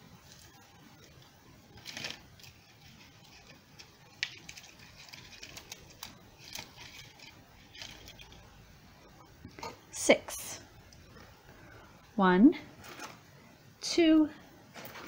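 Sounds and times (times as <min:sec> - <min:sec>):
twigs and plastic ribbon rustling: 0:00.2 - 0:08.6.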